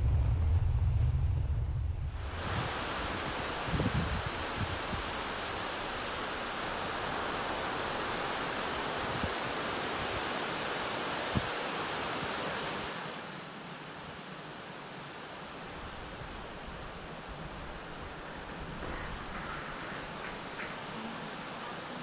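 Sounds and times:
wind thumps on microphone: 0.0s - 5.5s
wind: 0.0s - 22.0s
ocean surf: 2.1s - 22.0s.

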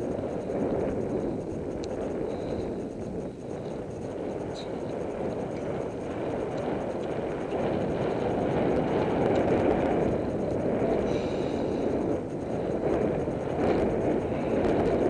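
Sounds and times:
wind noise on microphone: 0.0s - 15.0s.

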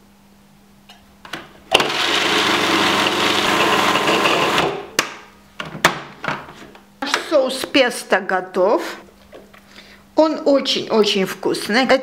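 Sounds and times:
food processor motor running: 1.7s - 4.9s.

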